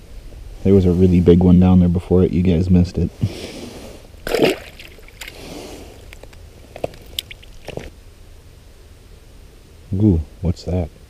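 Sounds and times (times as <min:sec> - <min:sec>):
rustling: 0:03.4 - 0:08.0
fish splashing into water: 0:04.2 - 0:07.9.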